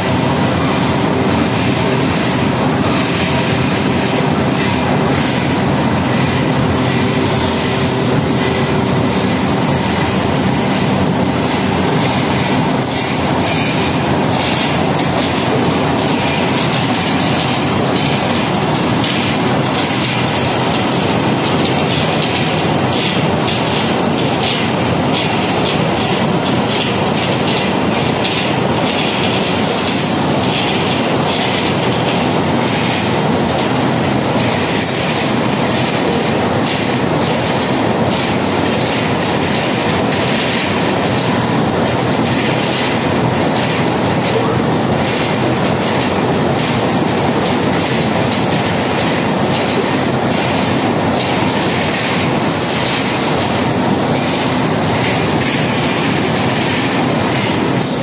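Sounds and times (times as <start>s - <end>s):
printing machine clattering: 0.0s - 58.0s.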